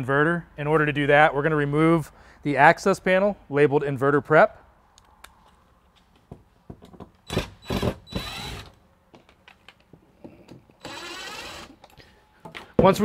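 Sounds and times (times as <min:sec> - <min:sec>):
cordless drill running: 0:07.3 - 0:08.8, 0:10.8 - 0:11.8.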